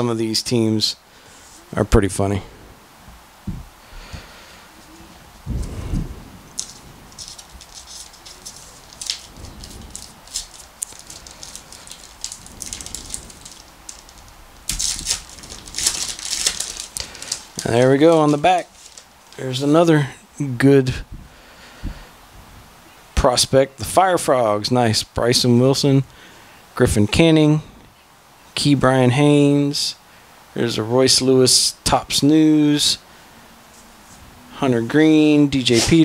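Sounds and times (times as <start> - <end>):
soft low thump: 3.1 - 3.7
wrapper crinkling and tearing: 6.5 - 19.6
trading cards rustling: 6.5 - 19.8.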